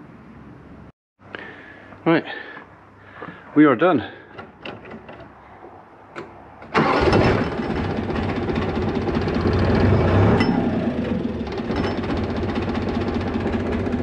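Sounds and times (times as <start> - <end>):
diesel engine starting and running: 6.1 - 14.0.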